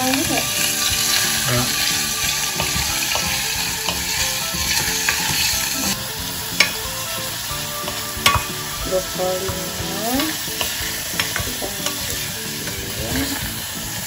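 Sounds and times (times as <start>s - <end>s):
food sizzling in a saucepan: 0.0s - 14.0s
spatula knocking against pan: 7.9s - 8.6s.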